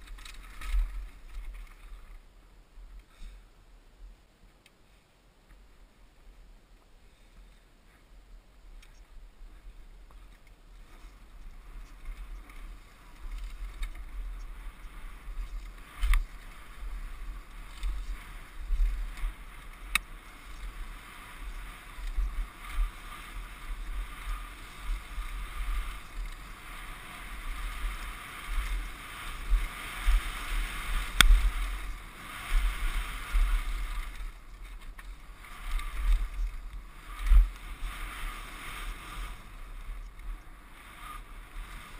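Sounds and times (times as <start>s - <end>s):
tyres rolling on dirt: 0.0s - 2.3s, 10.1s - 41.9s
wind noise over microphone: 8.9s - 41.9s.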